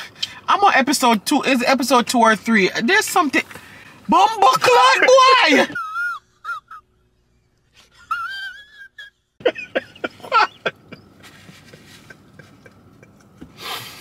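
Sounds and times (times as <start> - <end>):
breathy puff of air: 13.5 - 14.0.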